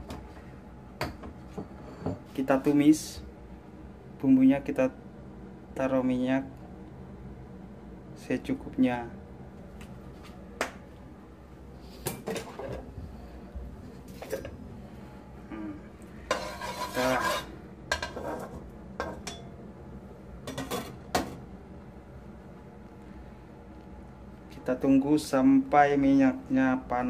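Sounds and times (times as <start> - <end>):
pan and cutlery clinking: 16.3 - 19.5.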